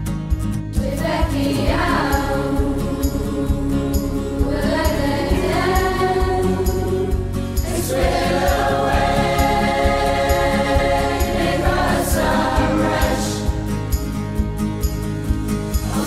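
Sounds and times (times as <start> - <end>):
choir singing long held notes: 0.9 - 13.6
steady beat: 4.5 - 16.0.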